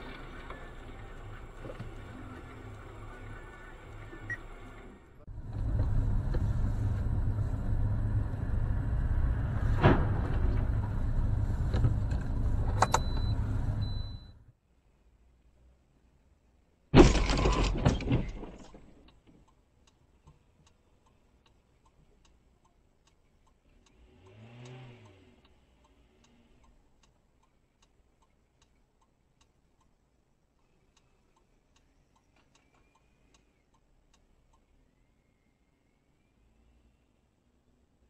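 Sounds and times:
car collision crunch: 9.6 - 12.4, 17.0 - 19.1
faint steady ticking: 19.0 - 38.0
car engine revving: 23.7 - 26.6.

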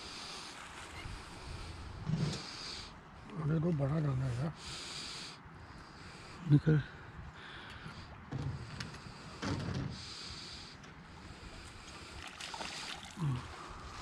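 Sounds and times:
fish splashing at water surface: 11.9 - 13.5.

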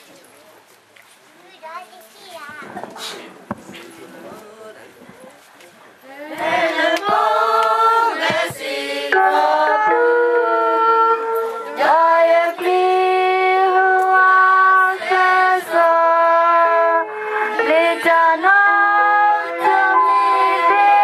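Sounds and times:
women's choir singing: 6.0 - 21.0.

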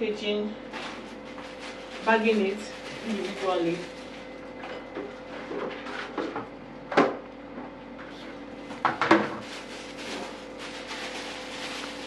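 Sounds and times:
plastic bag rustling and crackling: 0.7 - 4.6, 9.0 - 12.0.

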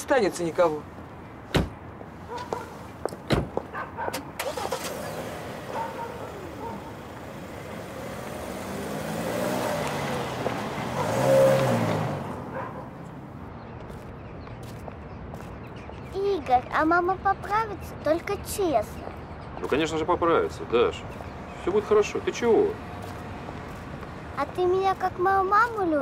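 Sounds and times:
car doors shutting: 1.5 - 1.8, 3.2 - 6.6
car driving past: 4.4 - 13.2.

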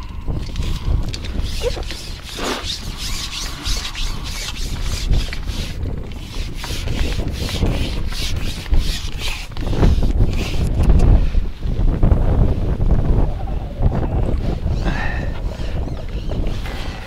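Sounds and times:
rhythmic rubbing or scraping: 0.0 - 10.9
wind rumble on microphone: 0.0 - 17.0.

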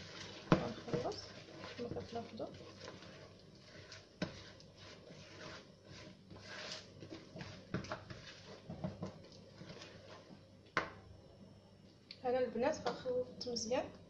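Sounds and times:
spatula scraping batter in bowl: 0.0 - 10.4.

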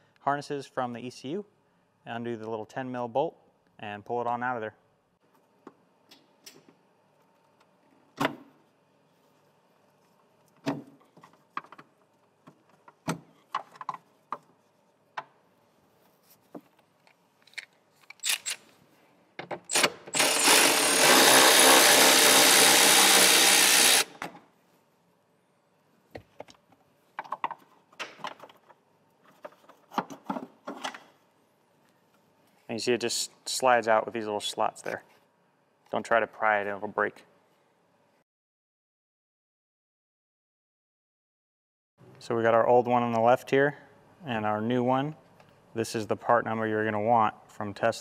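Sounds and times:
power driver running: 19.7 - 24.2.

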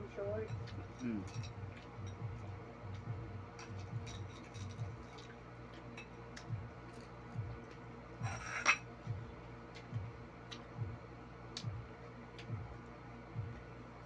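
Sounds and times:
ceramic plates clinking: 8.2 - 8.9.

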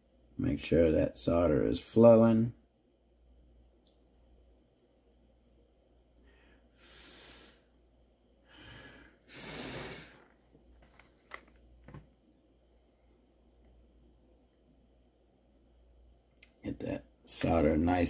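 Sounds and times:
person breathing out through nose: 6.3 - 7.7, 8.5 - 10.2.

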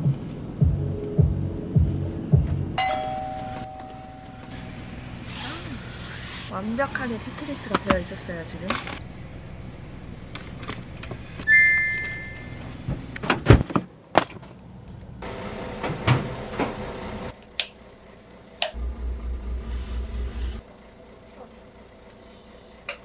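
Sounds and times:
low pulsing throb: 0.6 - 2.7, 18.8 - 20.6
tailgate warning beep: 11.5 - 12.6.

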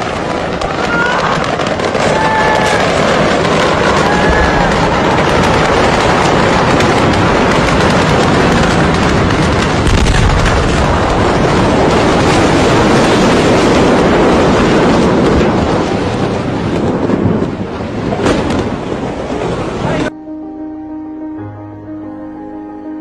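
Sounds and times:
explosion roar and rumble: 0.0 - 20.1.

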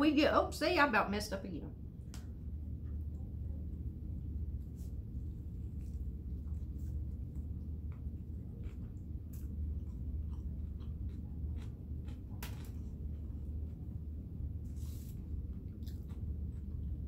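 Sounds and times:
steady low hum: 0.0 - 17.0
person chewing food: 4.9 - 17.0.

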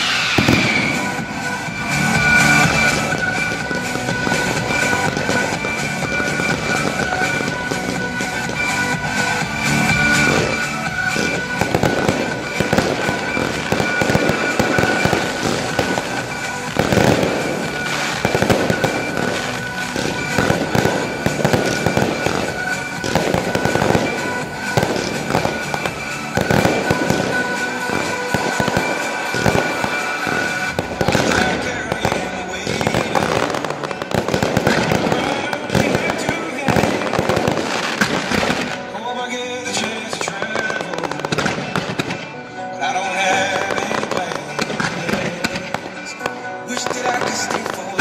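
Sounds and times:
firework shells bursting: 0.0 - 38.9
music: 0.0 - 48.0.

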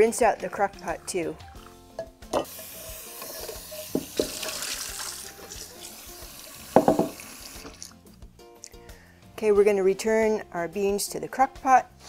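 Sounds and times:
tap water splashing in pot: 0.4 - 6.0, 6.6 - 8.0.

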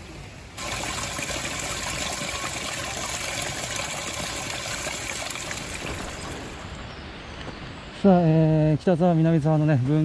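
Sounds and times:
water pouring into trough: 0.6 - 6.7.

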